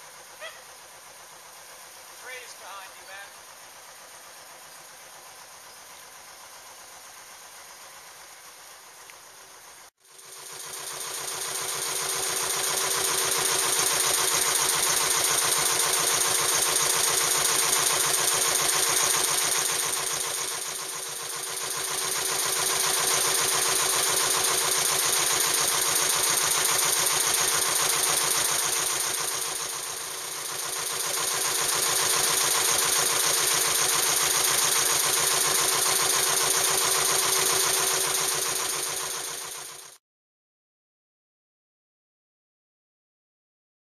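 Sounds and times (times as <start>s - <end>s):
boat engine running: 10.3s - 39.9s.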